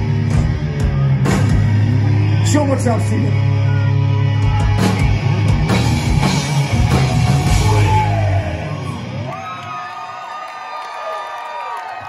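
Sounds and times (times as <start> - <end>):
live hard rock band playing: 0.0 - 9.3
crowd cheering and yelling: 0.0 - 12.0.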